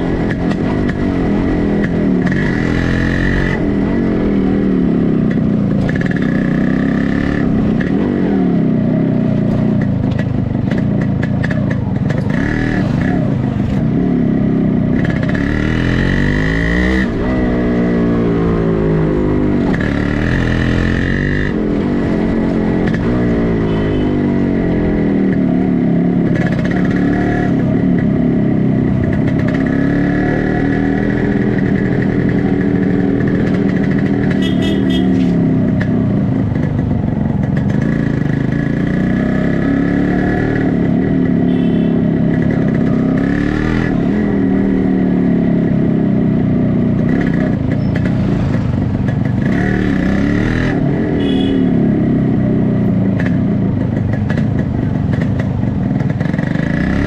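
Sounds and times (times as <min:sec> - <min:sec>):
two-stroke motorcycle engine revving: 0:00.0 - 0:57.0.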